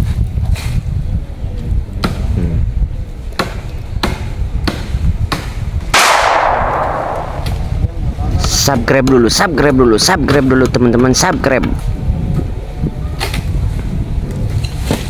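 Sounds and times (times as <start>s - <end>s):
wind rumble on microphone: 0.0s - 15.0s
sudden loud rushing sound: 6.0s - 8.2s.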